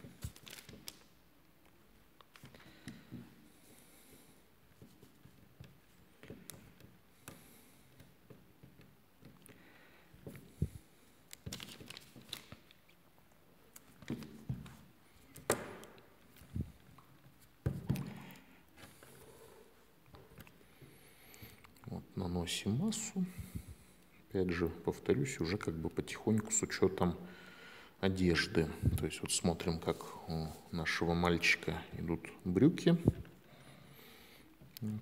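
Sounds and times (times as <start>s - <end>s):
hands handling plasticine: 0.0s - 21.9s.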